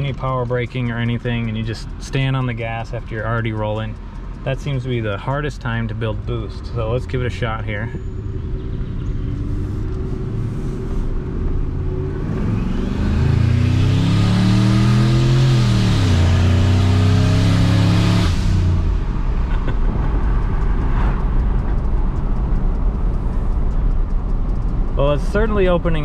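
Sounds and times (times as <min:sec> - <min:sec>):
engine revving at full throttle: 0:11.8 - 0:19.0.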